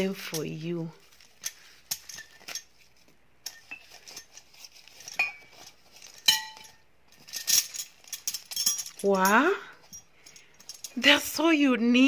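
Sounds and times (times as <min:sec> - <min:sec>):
plastic wrap rustling: 0:00.7 - 0:09.2
porcelain cups clinking: 0:03.4 - 0:11.0.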